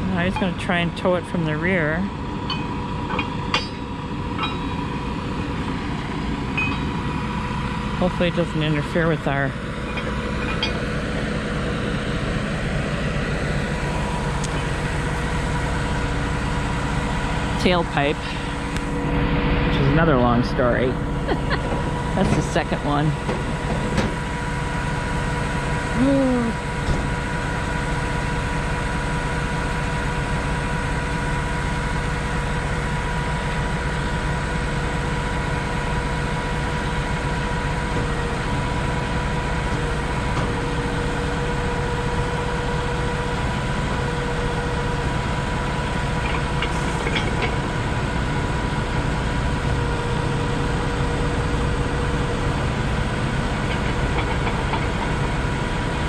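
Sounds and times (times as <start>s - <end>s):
truck engine idling: 0.0s - 56.0s.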